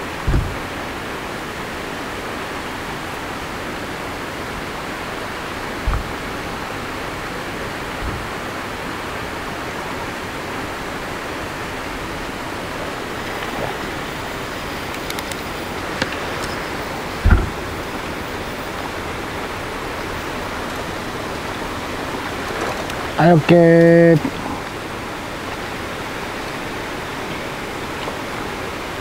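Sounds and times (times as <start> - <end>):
outdoor background hiss: 0.0 - 29.0
dull thump: 0.2 - 0.7, 5.8 - 6.6, 7.9 - 8.5, 15.7 - 19.7.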